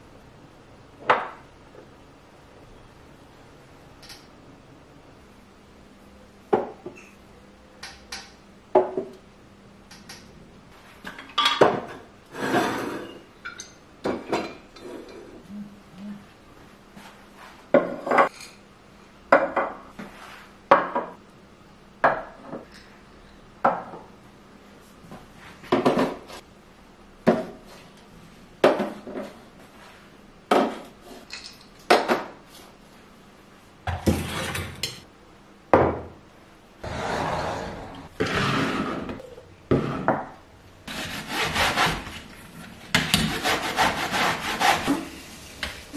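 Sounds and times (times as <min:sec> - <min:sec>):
kettle scraping across wooden counter: 0:36.8 - 0:39.2.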